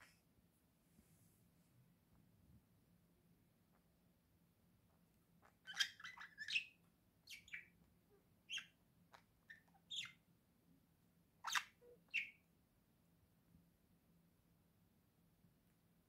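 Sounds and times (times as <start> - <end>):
budgerigar chirping: 5.4 - 7.8, 8.5 - 10.2, 11.4 - 12.4.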